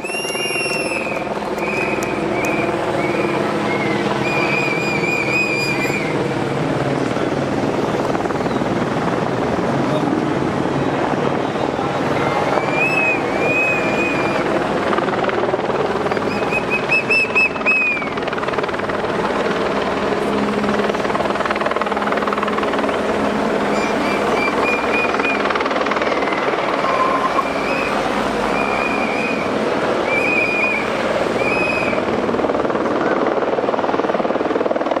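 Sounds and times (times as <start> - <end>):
short shrill high tones: 0.0 - 6.1, 26.2 - 29.4
helicopter overhead: 0.0 - 35.0
cars driving past: 26.2 - 32.0.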